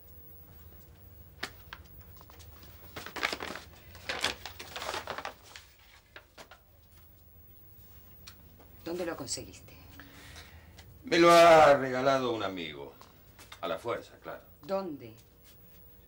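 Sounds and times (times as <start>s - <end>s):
paper rustling and crinkling: 1.4s - 7.1s.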